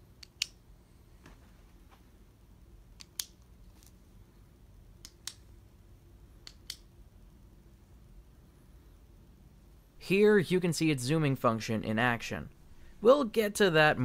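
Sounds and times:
flashlight switch clicks: 0.2s - 0.6s.

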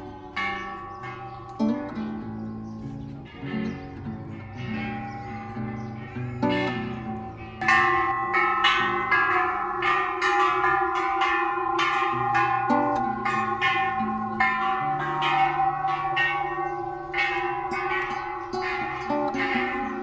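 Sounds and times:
struck notes ringing: 0.0s - 20.0s.

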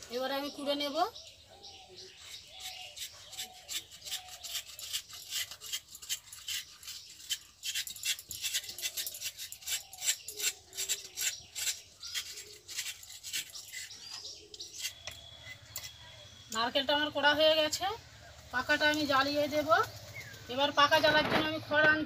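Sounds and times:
knife scraping coconut flesh: 2.2s - 16.2s.

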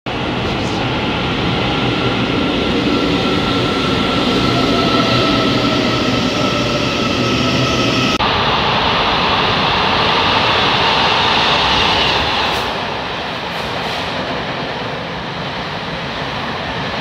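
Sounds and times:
high whine of train: 0.1s - 17.0s
train wheels rumbling on rail: 0.1s - 17.0s.

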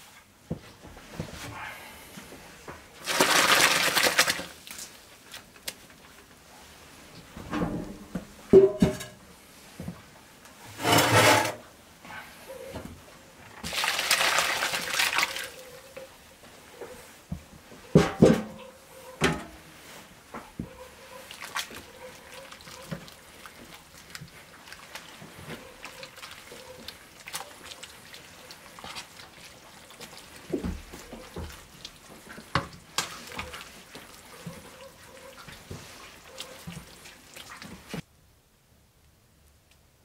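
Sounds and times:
thick mash stirred in pot: 0.0s - 7.1s, 13.5s - 18.0s, 19.0s - 38.1s
sloshing and squelching: 3.0s - 6.1s, 13.6s - 16.0s, 20.7s - 38.1s
utensils knocking against pot: 8.6s - 9.2s.

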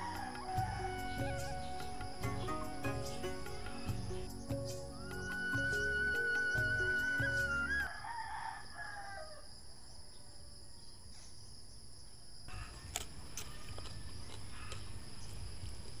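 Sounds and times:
rooster crowing: 0.0s - 2.1s, 5.3s - 9.6s
background music: 0.0s - 7.9s.

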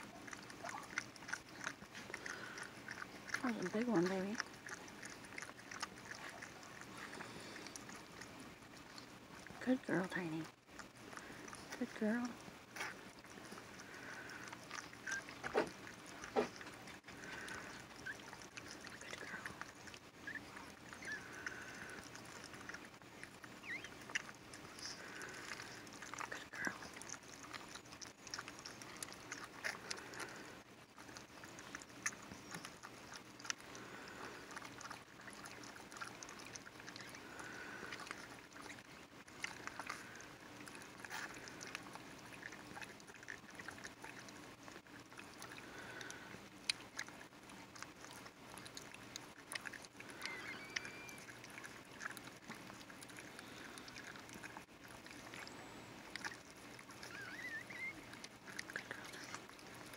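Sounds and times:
dog licking wetly: 0.0s - 59.9s
puppy soft squeaks: 15.0s - 15.7s, 19.6s - 22.0s, 23.4s - 24.2s, 50.2s - 51.3s, 56.9s - 58.2s.

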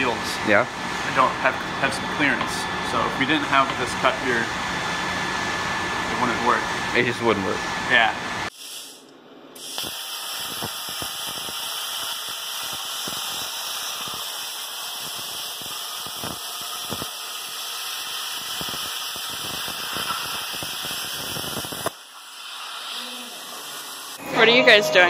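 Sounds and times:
plasma cutter hissing and crackling: 8.4s - 24.2s.

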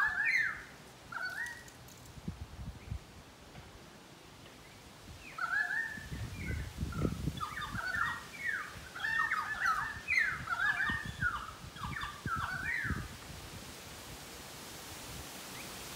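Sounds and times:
birds whistling calls: 0.0s - 1.7s, 4.6s - 13.1s.

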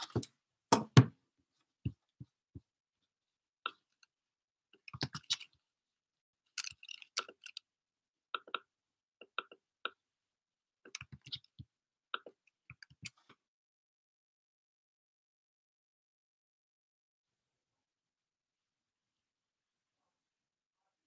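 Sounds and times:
keyboard and mouse clicks: 4.8s - 5.5s, 10.9s - 11.6s.

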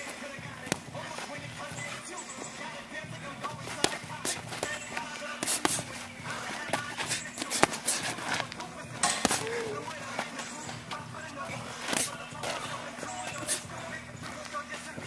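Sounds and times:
boxing glove punches: 0.0s - 1.7s, 3.2s - 10.2s
background music: 0.0s - 15.0s.

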